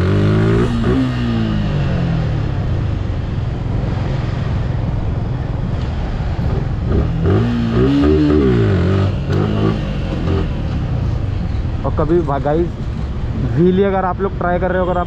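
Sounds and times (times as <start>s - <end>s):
motorcycle engine revving: 0.0s - 5.0s, 6.4s - 11.1s.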